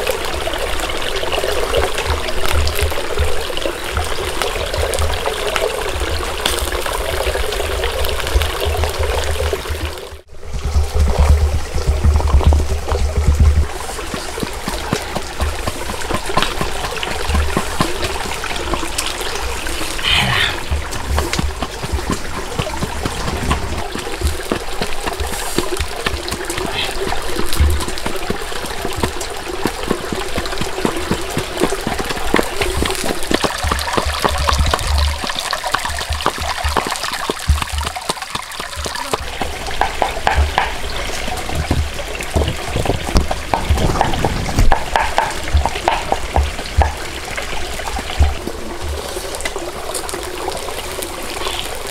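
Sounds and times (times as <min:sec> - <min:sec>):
stream trickling over rocks: 0:00.0 - 0:51.9
stone pounding in stone mortar: 0:11.3 - 0:19.3, 0:20.0 - 0:41.0, 0:41.6 - 0:47.1.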